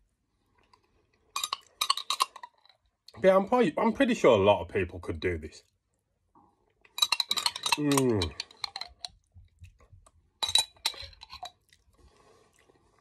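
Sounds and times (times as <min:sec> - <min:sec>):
metal spoon clinking on glass jar: 0:01.4 - 0:02.7, 0:07.0 - 0:09.2, 0:10.4 - 0:11.6.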